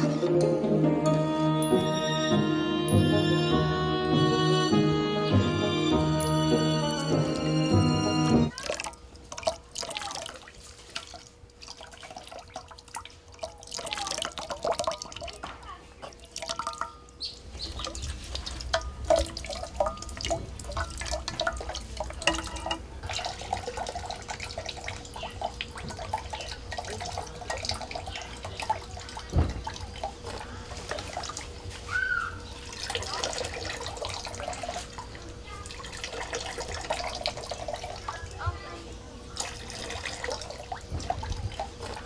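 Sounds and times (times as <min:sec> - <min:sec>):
water dripping into metal pot: 0:08.5 - 0:31.6, 0:32.7 - 0:38.3.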